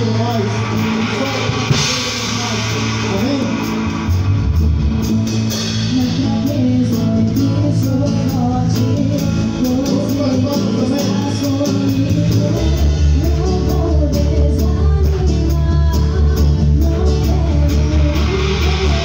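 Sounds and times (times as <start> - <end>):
cymbal strikes: 0.0 - 6.8
live band playing: 0.0 - 19.0.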